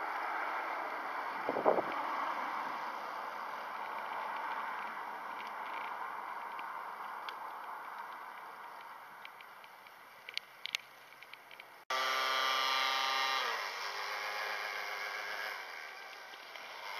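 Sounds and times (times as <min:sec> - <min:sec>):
small electric motor whining: 0:11.9 - 0:16.9.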